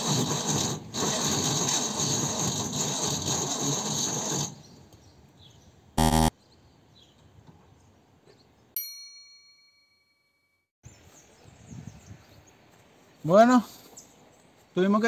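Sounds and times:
short loud buzz: 0:06.0 - 0:06.3
bell-like ding: 0:08.8 - 0:10.6.

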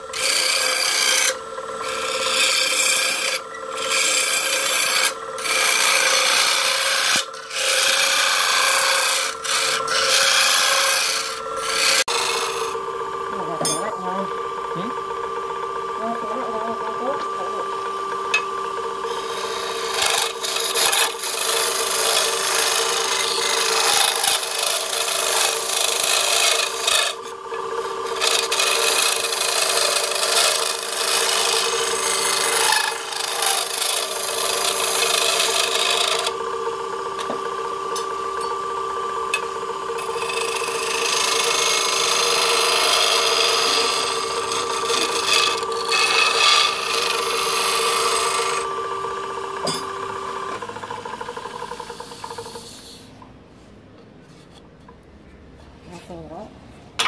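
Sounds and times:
wood lathe motor hum: 0:00.0 - 0:55.1
scraper rasping on wood: 0:19.1 - 0:27.2.

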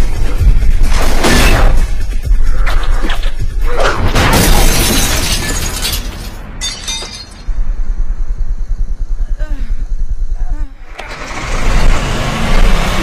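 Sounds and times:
film score with pulsing beat: 0:00.0 - 0:04.0
glass window smashing: 0:04.1 - 0:07.5
tinkling of falling glass shards: 0:04.7 - 0:07.5.

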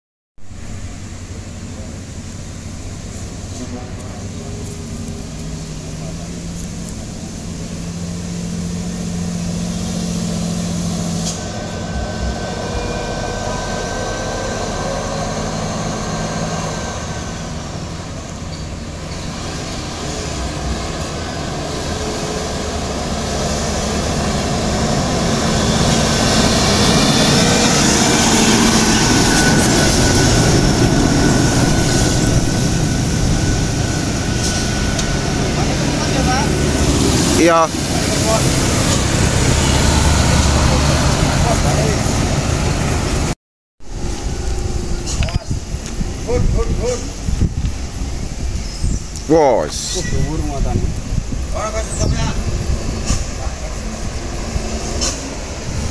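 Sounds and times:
truck diesel engine: 0:00.4 - 0:55.9.

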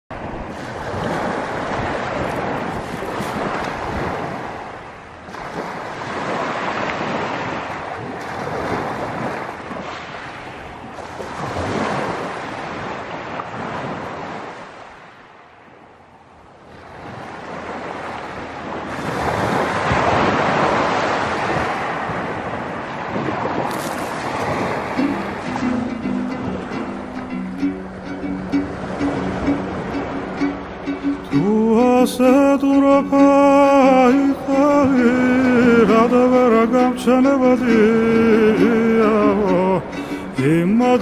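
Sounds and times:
waves washing over pebble beach: 0:00.5 - 0:04.7, 0:18.8 - 0:25.6.

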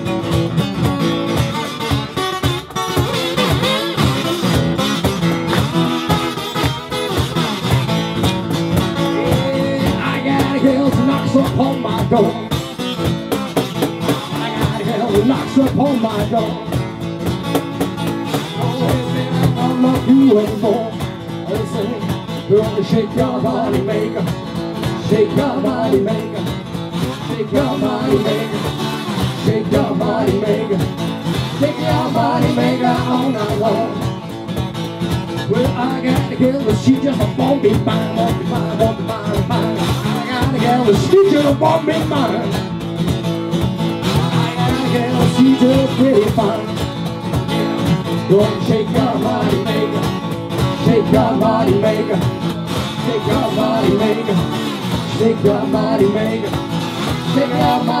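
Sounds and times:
acoustic guitar strumming: 0:00.0 - 0:58.0
cajon beat: 0:00.0 - 0:58.0
man and woman singing: 0:09.0 - 0:12.5, 0:14.2 - 0:16.7, 0:18.6 - 0:34.1, 0:35.4 - 0:42.6, 0:44.2 - 0:46.8, 0:48.2 - 0:58.0.

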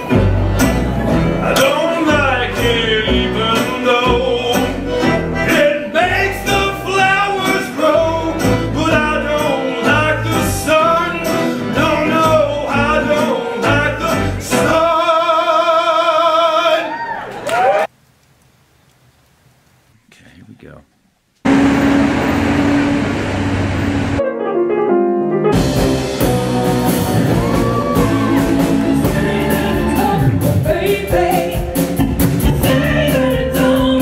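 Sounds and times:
country band music: 0:00.0 - 0:16.6, 0:21.7 - 0:34.0
person singing: 0:27.2 - 0:34.0.

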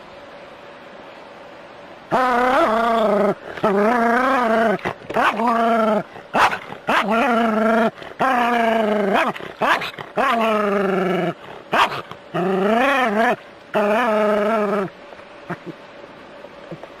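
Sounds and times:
dog yelping: 0:02.1 - 0:10.6, 0:11.2 - 0:14.9
dog howling barks: 0:03.8 - 0:07.6, 0:08.2 - 0:10.6, 0:11.7 - 0:12.0.

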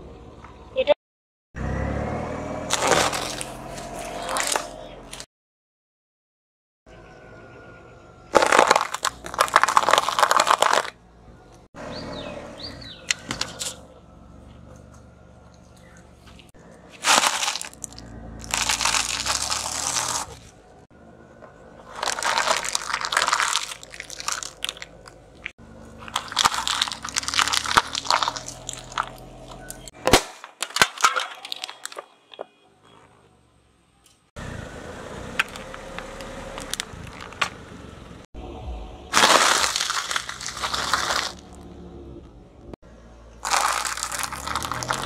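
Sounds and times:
tyre crushing plastic cups: 0:02.7 - 0:05.2, 0:08.3 - 0:11.0, 0:17.0 - 0:20.6, 0:21.8 - 0:32.4, 0:35.4 - 0:37.6, 0:39.1 - 0:41.6, 0:43.4 - 0:45.0
sharp cracks and snaps: 0:22.0 - 0:32.1.

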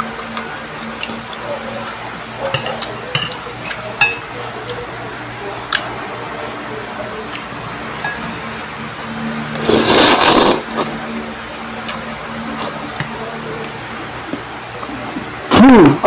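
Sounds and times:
steady low hum: 0:00.0 - 0:16.0
person slurping food: 0:09.6 - 0:10.9.

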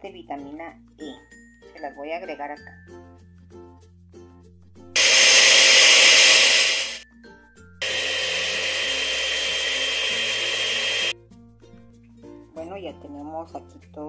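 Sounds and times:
electric blender running: 0:05.0 - 0:07.0, 0:07.8 - 0:11.1.

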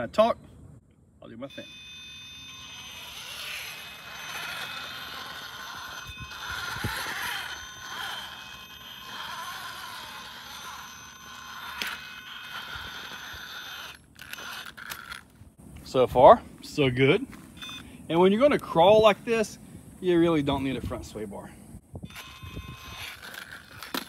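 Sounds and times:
electric motor whining: 0:01.5 - 0:15.3, 0:22.1 - 0:24.0.

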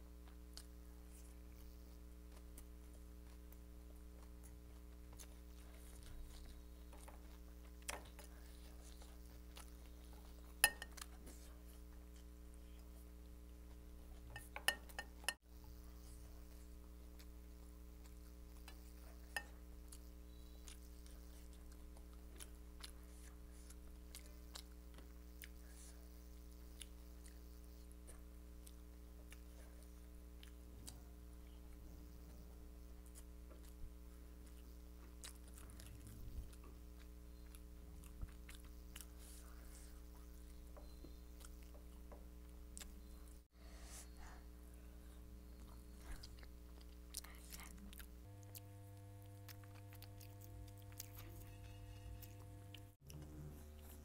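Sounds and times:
chewing with mouth clicks: 0:00.2 - 0:15.4, 0:16.0 - 0:43.5, 0:45.0 - 0:54.0
fingers clinking on steel plate: 0:10.6 - 0:11.0, 0:14.3 - 0:15.4
low hum: 0:35.7 - 0:54.0.

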